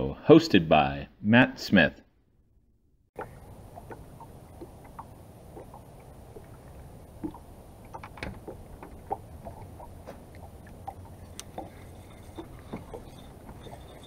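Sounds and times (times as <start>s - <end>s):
waves lapping against boat hull: 3.2s - 14.0s.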